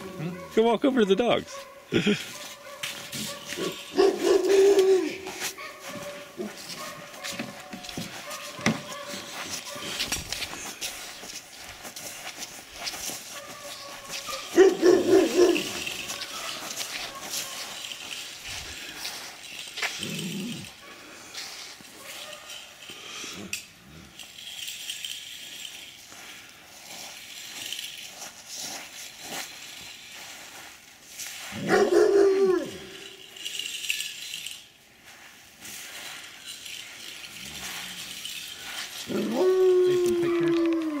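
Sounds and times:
dog howling: 4.0 - 5.3, 39.1 - 41.0.

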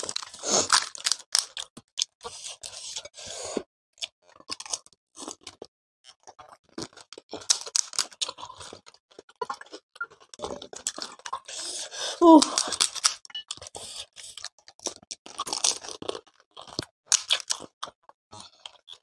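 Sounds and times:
crisp shells cracking: 0.0 - 1.7, 7.4 - 8.3, 12.4 - 13.3, 16.6 - 17.7
chewing: 4.0 - 11.9, 12.5 - 19.0.

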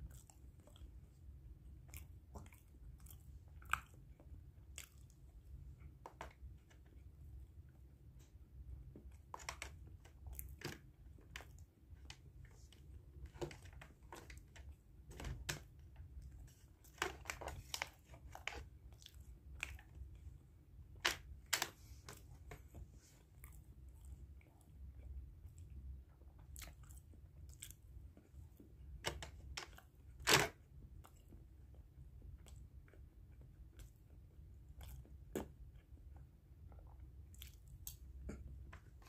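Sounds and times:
person chewing: 0.0 - 1.2, 1.8 - 5.3, 34.7 - 39.0
low steady hum: 0.0 - 39.0.

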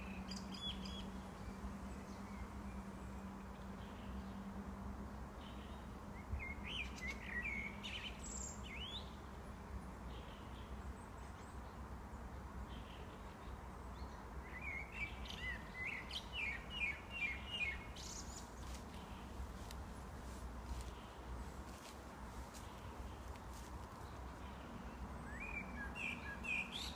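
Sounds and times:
blackbird singing: 0.0 - 2.4, 5.4 - 9.2, 14.0 - 19.4, 24.4 - 26.9.

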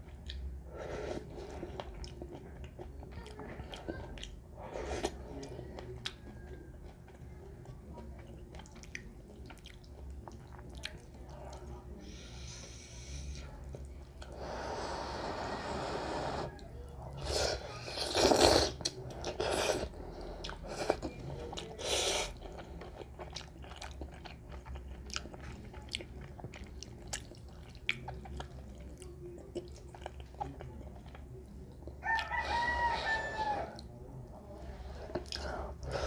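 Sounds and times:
soft chewing with mouth clicks: 0.0 - 36.0
noodles slurped: 17.2 - 21.1.

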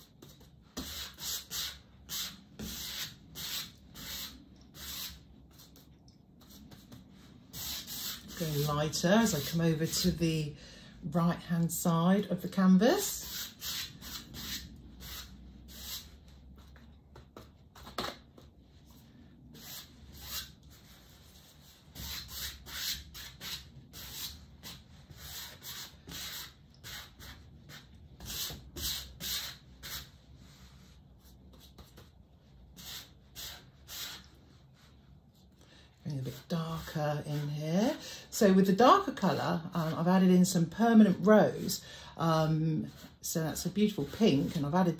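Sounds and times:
paintbrush scrubbing canvas: 0.0 - 10.2, 13.0 - 35.5, 42.8 - 44.7.

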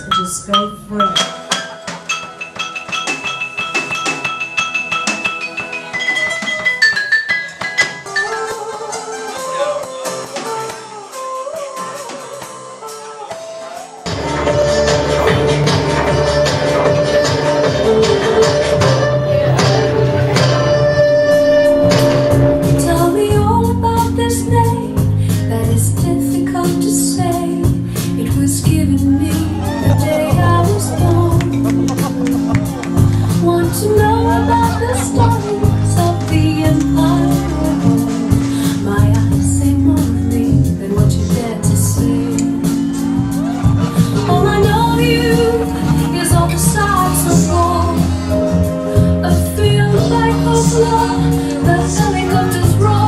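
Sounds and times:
person singing: 8.2 - 42.9, 43.6 - 53.0
music with beat and bass: 14.1 - 26.5, 27.2 - 53.0.

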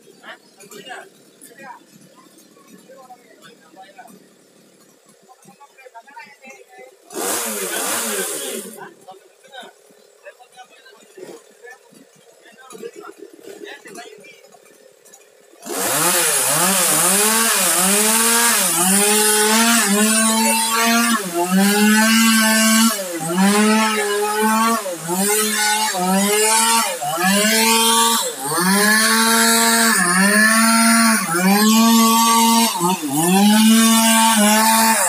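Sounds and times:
chainsaw cutting log: 7.0 - 9.0, 11.0 - 35.0.

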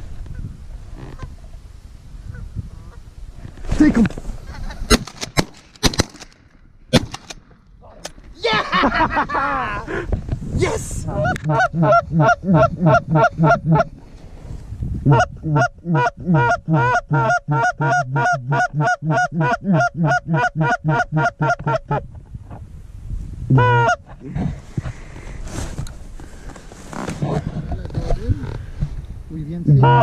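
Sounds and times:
goose honking: 11.2 - 13.9, 15.1 - 22.0, 23.6 - 24.0, 29.7 - 30.0.

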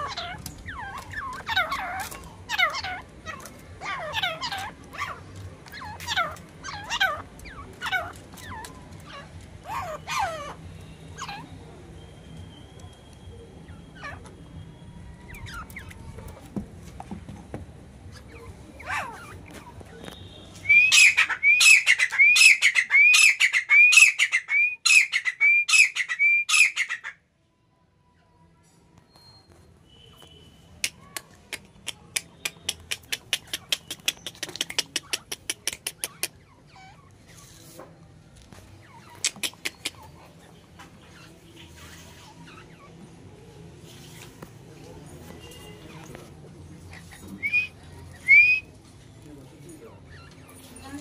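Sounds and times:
francolins calling: 0.0 - 12.6, 18.1 - 27.2, 46.9 - 48.7
fingers snapping: 30.8 - 36.3.

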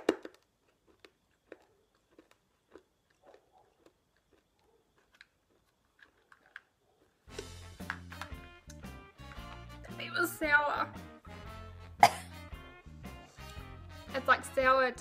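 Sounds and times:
mouth clicks of chewing candy: 0.0 - 9.6.

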